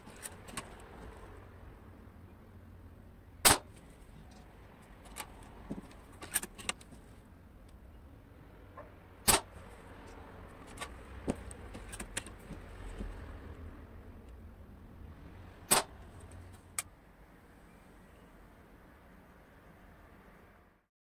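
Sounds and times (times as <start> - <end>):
airsoft rifle shots: 3.4 - 3.7, 9.2 - 9.6, 15.7 - 16.0.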